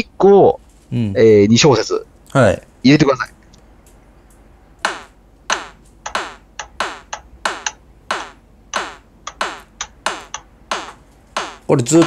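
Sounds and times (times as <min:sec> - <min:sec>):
synthesized kick drum loop: 0:04.9 - 0:12.0.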